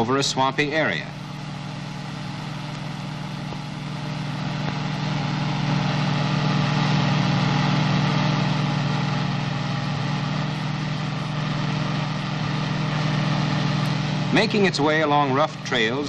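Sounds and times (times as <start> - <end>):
jeep engine running: 0.0 - 16.0.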